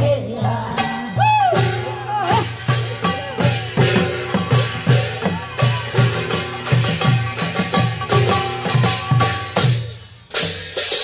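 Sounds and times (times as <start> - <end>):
person singing: 0.0 - 4.1
metallic percussion strokes: 0.7 - 11.0
drum beat: 0.8 - 11.0
folk melody: 1.6 - 10.3.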